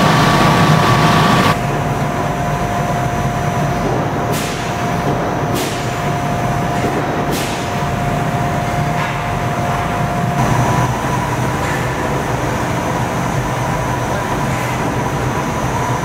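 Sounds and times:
thread-rolling machine running: 0.0 - 4.2, 7.7 - 16.0.

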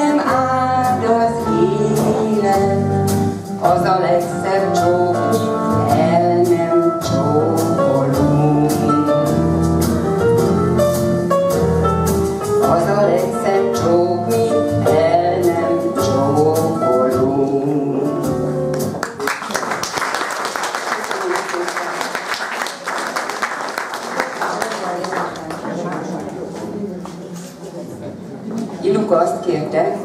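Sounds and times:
woman singing into a microphone: 0.0 - 9.1, 12.6 - 18.3
applause: 18.7 - 26.2.

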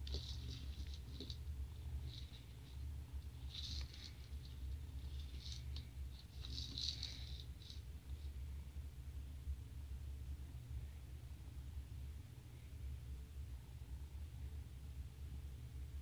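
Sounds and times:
light scratches and taps on tile: 0.0 - 1.4
steady low hum: 0.0 - 16.0.

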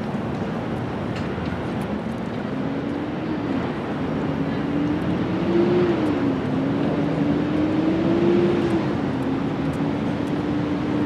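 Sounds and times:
constant rushing noise: 0.0 - 11.0.

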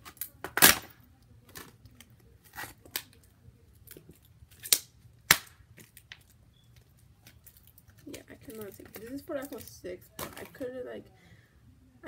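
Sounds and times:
plastic packaging rustling: 5.8 - 10.7.

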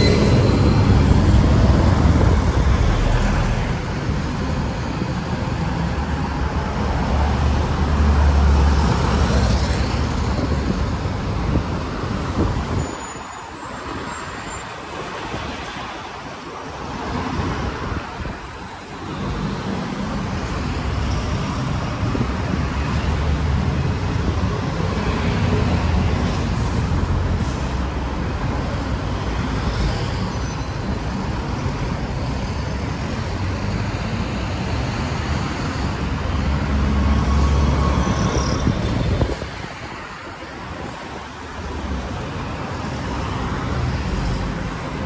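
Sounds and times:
buses passing with diesel rumble: 0.0 - 45.0.

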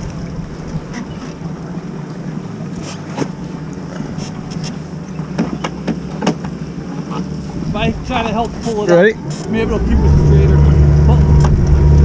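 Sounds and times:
wind buffeting microphone: 0.0 - 4.8, 7.4 - 12.0
boat motor running: 0.0 - 12.0.

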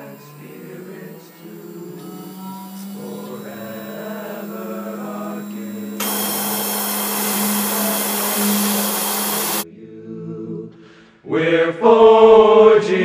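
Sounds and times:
router bit cutting noise: 0.0 - 9.6
router spindle humming: 0.0 - 9.6
choir song: 0.0 - 13.0.

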